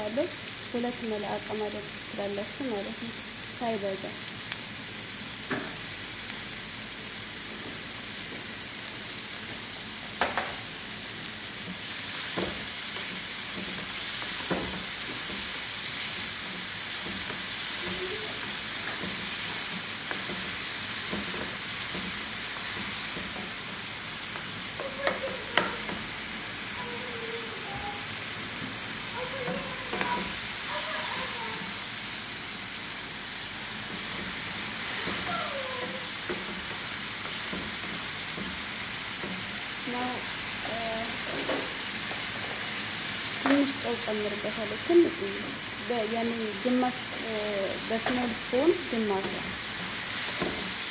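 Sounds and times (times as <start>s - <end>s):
meat sizzling in a frying pan: 0.0s - 50.9s
wooden spoon knocking on pan: 10.2s - 10.6s, 12.3s - 15.6s, 16.4s - 26.1s.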